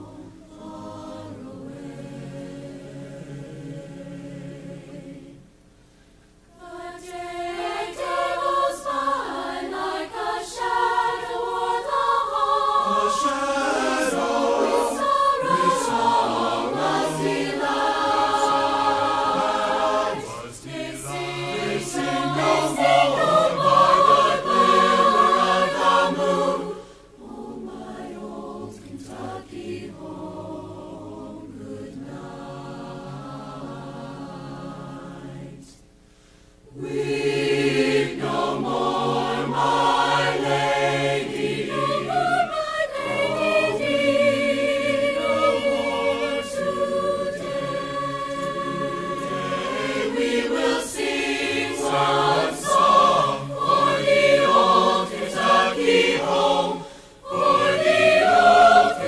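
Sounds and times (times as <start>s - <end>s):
marching band chorale music: 7.2s - 29.3s, 36.8s - 59.0s.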